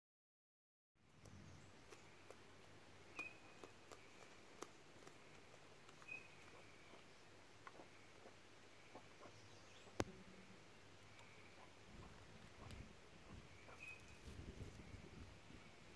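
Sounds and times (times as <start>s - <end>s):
chickens pecking: 1.1s - 15.9s
chicken chirps: 5.9s - 10.0s, 11.2s - 14.4s.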